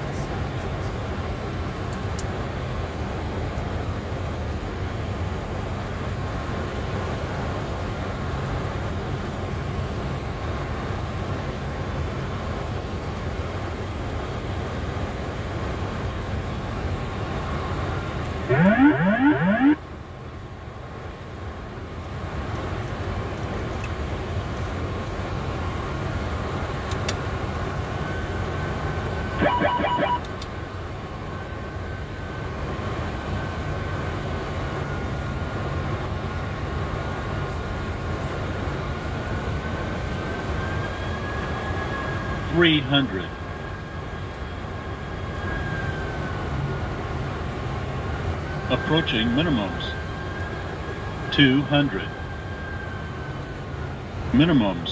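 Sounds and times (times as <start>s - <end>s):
cockpit airflow and engines: 0.0s - 54.9s
pulsed electronic sound: 18.5s - 19.8s, 29.4s - 30.3s
rising electronic wail: 18.5s - 19.8s, 29.4s - 30.3s.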